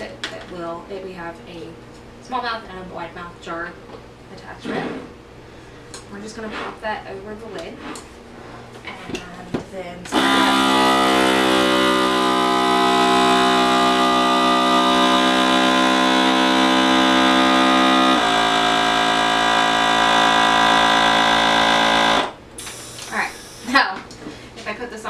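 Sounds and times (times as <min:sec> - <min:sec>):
vacuum sealer pump running: 0:10.1 - 0:23.9.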